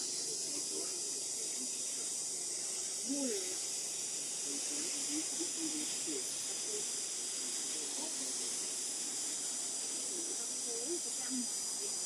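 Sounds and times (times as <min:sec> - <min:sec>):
faint distant voices talking: 0:00.0 - 0:12.0
high-pitched outdoor hiss: 0:00.0 - 0:12.0.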